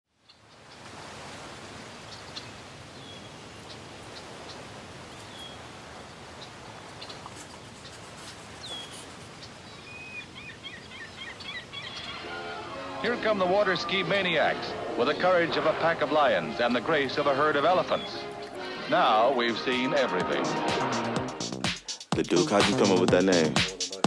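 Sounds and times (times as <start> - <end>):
small birds chirping: 0.2 - 0.9, 1.8 - 12.4, 16.4 - 18.7.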